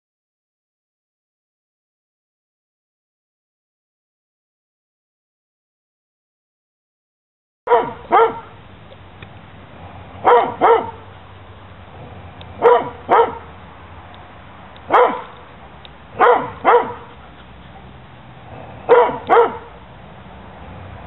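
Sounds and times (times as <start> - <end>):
dog barking: 7.7 - 8.6, 10.2 - 11.1, 12.6 - 13.5, 14.9 - 15.4, 16.2 - 17.2, 18.8 - 19.8.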